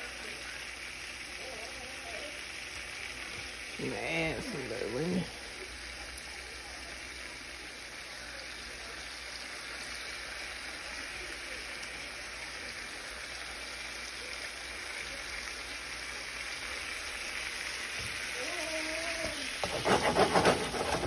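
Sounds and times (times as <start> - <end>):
butter sauce sizzling in skillet: 0.0 - 21.0.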